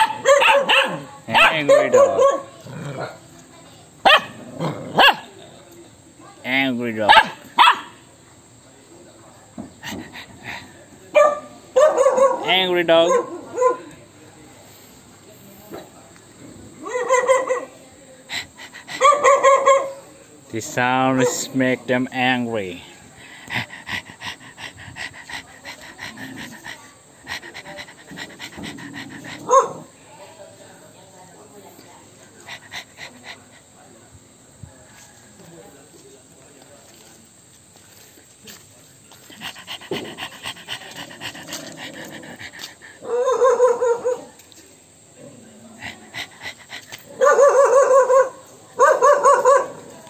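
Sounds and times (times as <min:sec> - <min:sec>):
dog barking: 0:00.0 - 0:03.1, 0:04.0 - 0:05.3, 0:07.1 - 0:08.0, 0:11.1 - 0:13.9, 0:16.8 - 0:17.7, 0:19.0 - 0:20.0, 0:29.4 - 0:29.9, 0:43.0 - 0:44.4, 0:47.1 - 0:49.9
dog panting: 0:09.8 - 0:10.8, 0:18.3 - 0:19.3, 0:23.1 - 0:29.9, 0:32.3 - 0:33.8, 0:39.1 - 0:44.2, 0:45.7 - 0:47.3.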